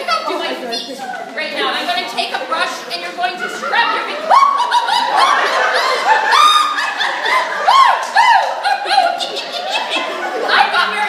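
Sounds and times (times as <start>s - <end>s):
women giggling loudly: 3.5s - 11.0s.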